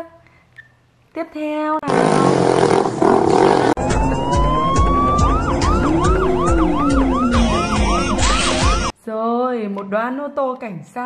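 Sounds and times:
police siren wailing: 3.8s - 8.9s.

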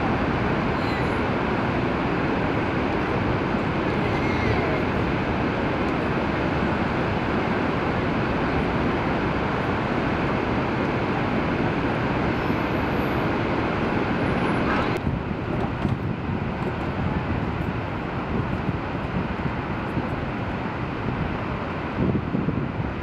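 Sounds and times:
waterfall roaring: 0.0s - 23.0s
churning river: 13.2s - 22.0s.

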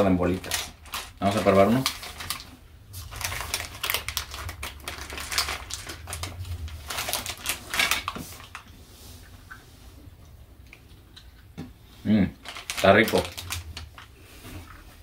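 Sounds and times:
plastic bag crackling and rustling: 0.0s - 8.8s, 12.3s - 14.8s.

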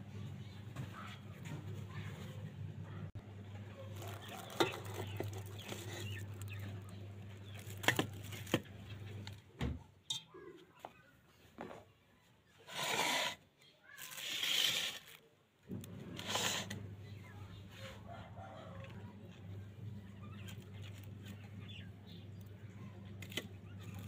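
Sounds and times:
low steady hum: 15.6s - 24.0s.

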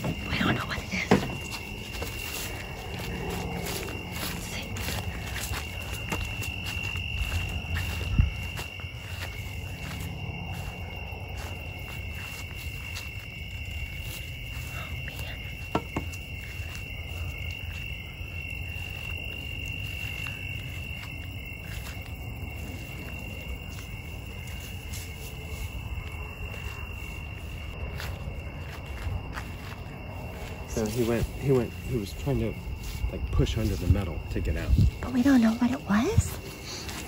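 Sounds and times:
crickets trilling: 0.0s - 37.0s.

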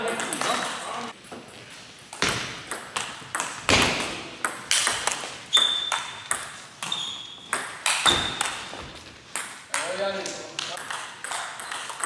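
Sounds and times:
short high squeaks: 5.5s - 6.2s, 6.8s - 8.4s.

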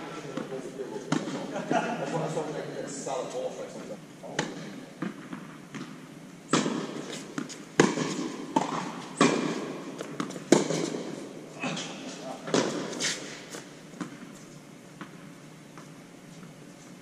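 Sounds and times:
tennis rackets striking ball: 1.1s - 1.5s, 4.4s - 11.3s, 12.5s - 14.3s
ball bouncing on hard court: 4.4s - 11.2s, 12.5s - 13.0s.

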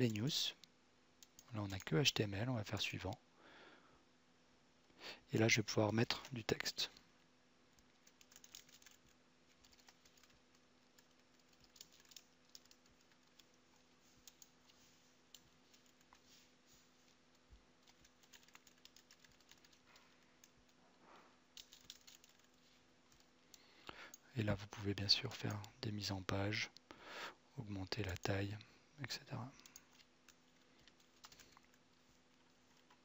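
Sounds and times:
faint electrical hum: 0.0s - 33.0s
keyboard typing: 8.0s - 9.0s, 9.6s - 10.4s, 11.0s - 13.6s, 17.8s - 19.8s, 30.8s - 31.6s.

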